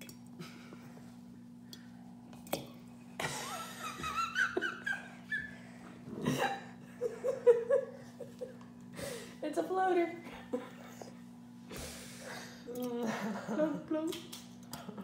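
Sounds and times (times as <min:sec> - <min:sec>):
steady low hum: 0:00.0 - 0:15.0
people laughing: 0:03.2 - 0:05.6, 0:06.2 - 0:08.6, 0:13.0 - 0:13.9.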